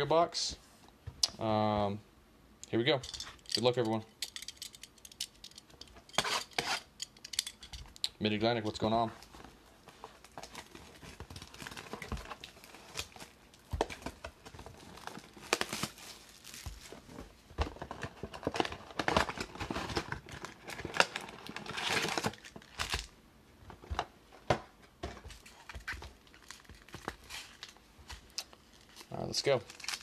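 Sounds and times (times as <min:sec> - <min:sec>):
foil packs rustling: 0:09.2 - 0:23.1, 0:25.4 - 0:30.0
plastic wrap tearing and crinkling: 0:10.0 - 0:23.1, 0:25.5 - 0:30.0.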